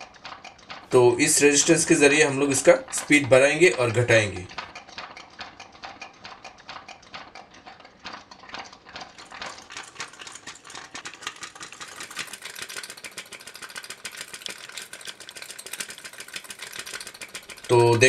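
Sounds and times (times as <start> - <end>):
electromagnetic engine clattering: 0.0 - 18.0.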